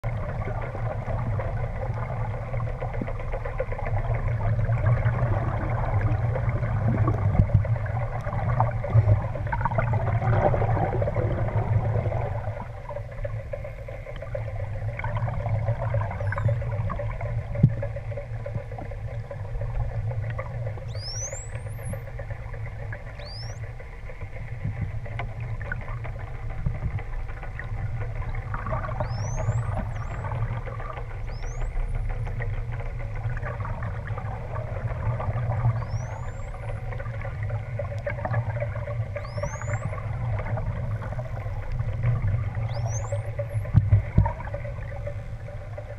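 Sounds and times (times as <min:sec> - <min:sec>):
low underwater hum and hiss: 0:00.0 - 0:45.9
dolphin whistles: 0:20.8 - 0:22.0, 0:23.1 - 0:23.7, 0:28.9 - 0:30.3, 0:31.2 - 0:31.8, 0:35.6 - 0:36.9, 0:39.1 - 0:40.1, 0:42.5 - 0:43.7.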